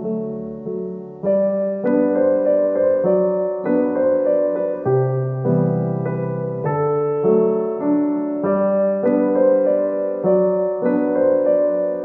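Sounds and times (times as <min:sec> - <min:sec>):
gentle piano music: 0:00.0 - 0:12.0.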